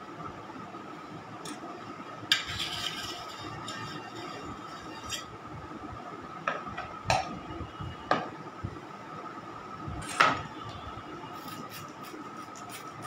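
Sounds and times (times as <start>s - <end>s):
knife scraping metal: 2.3s - 5.4s, 11.4s - 13.0s.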